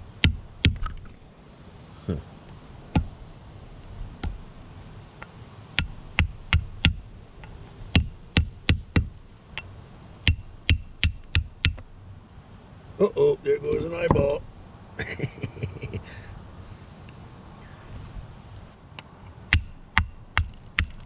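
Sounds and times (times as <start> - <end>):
chisel tapping rock: 5.8 - 7.0, 7.9 - 11.8, 19.0 - 21.0.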